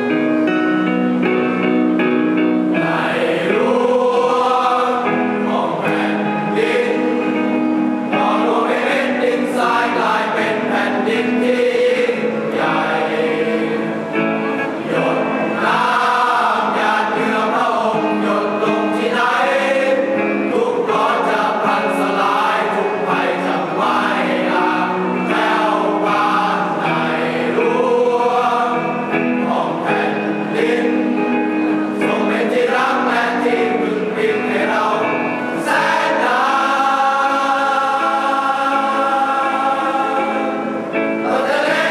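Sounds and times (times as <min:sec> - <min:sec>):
choir singing: 0:00.0 - 0:02.0, 0:02.6 - 0:41.9.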